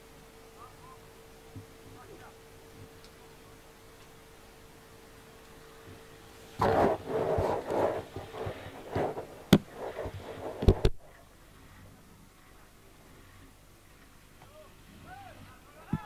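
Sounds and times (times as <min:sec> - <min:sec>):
grass rustling: 0:05.5 - 0:15.8
microphone handling noise: 0:06.6 - 0:11.2.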